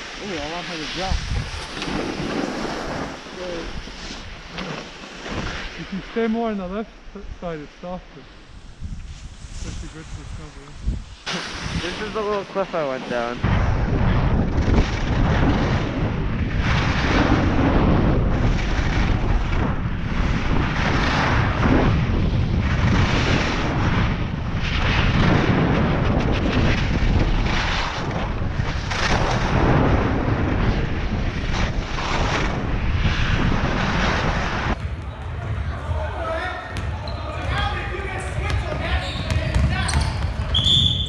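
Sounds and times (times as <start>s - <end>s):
skis carving on snow: 0.0s - 6.8s, 7.5s - 13.4s, 16.6s - 34.8s
wind rushing over microphone: 0.0s - 41.0s.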